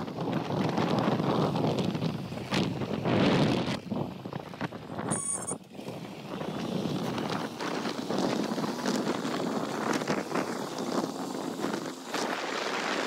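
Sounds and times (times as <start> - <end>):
motorbike ride rush: 0.0 - 13.0
wind buffeting microphone: 0.0 - 13.0
brief high-pitched chirp: 5.1 - 5.6.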